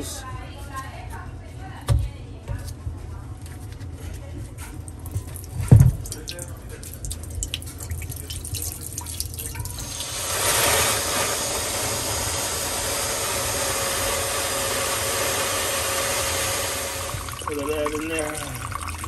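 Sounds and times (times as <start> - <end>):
water dripping into glass bowl: 5.0 - 10.1, 17.0 - 19.0
water pouring and splashing: 5.0 - 11.0, 16.8 - 19.0.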